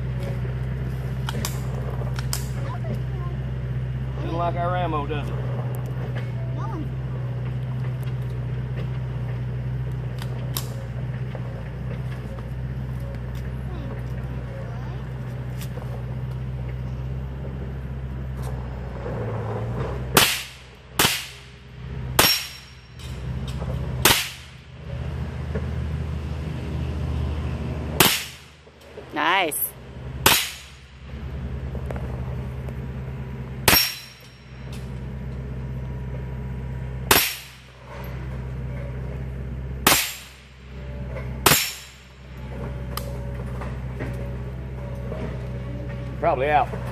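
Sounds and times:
rifle shots: 20.2 - 21.5, 24.0 - 24.6, 28.0 - 28.6, 30.2 - 30.9, 39.8 - 40.4.

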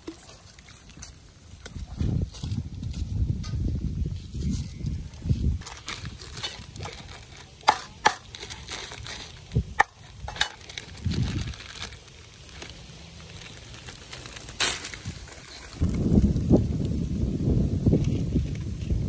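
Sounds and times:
plastic packet crinkling: 5.6 - 16.1.

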